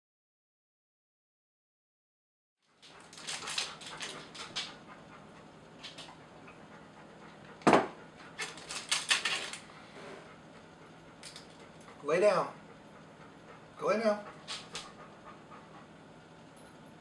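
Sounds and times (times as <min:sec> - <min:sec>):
dog panting: 0:02.6 - 0:16.4.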